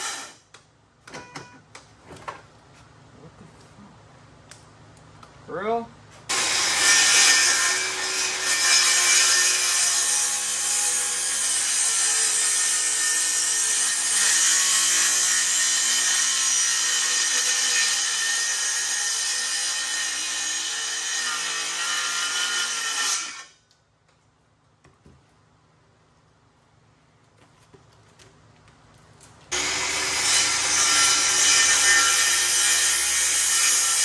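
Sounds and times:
circular saw cutting wood: 0.0s - 0.4s, 6.3s - 23.5s, 29.5s - 34.0s.

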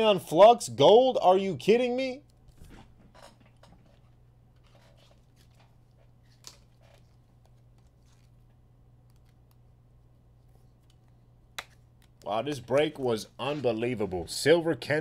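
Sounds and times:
low steady hum: 0.0s - 15.0s
trading cards clicking and rustling: 10.5s - 14.1s.

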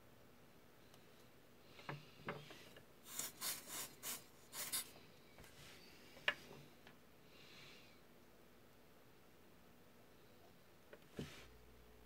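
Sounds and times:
scratchy rubbing strokes: 3.0s - 4.9s
soldering iron hiss: 3.1s - 4.9s.

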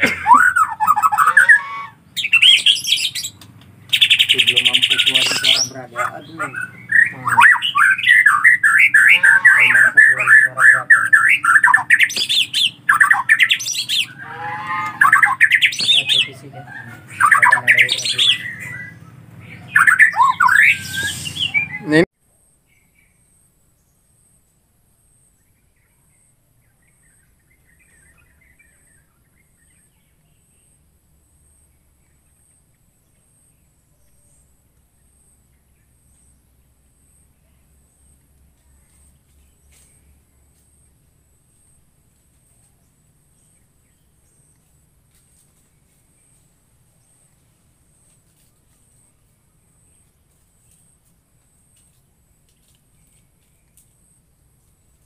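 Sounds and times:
bird chirps: 0.0s - 24.3s.

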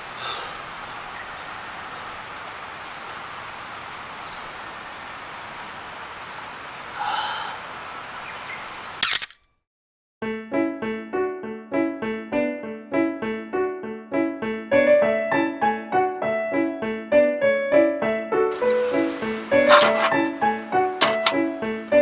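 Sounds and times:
outdoor background noise: 0.0s - 9.5s, 18.5s - 22.0s
sharp click: 9.0s - 9.6s.

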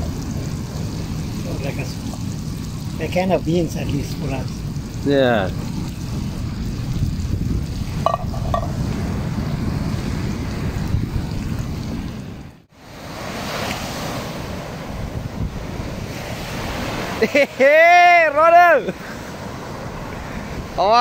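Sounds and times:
wind buffeting microphone: 0.0s - 13.2s, 13.8s - 17.2s
surf on a beach: 0.0s - 21.0s
waves breaking on shore: 5.5s - 21.0s.

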